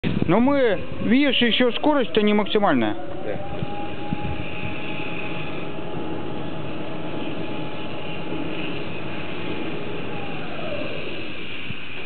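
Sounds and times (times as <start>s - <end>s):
electric motor whine: 0.1s - 12.0s
mechanical hissing noise: 3.5s - 12.0s.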